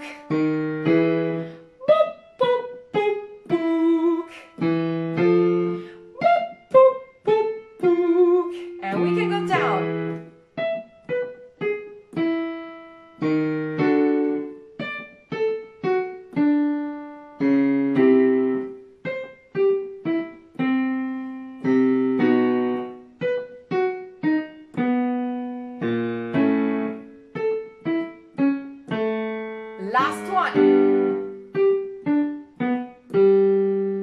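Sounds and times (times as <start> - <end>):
electronic keyboard piano notes: 0.0 - 34.0.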